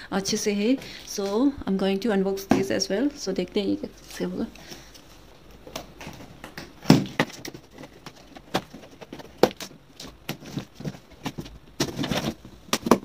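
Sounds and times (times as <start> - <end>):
rustling of packing: 4.0 - 13.0.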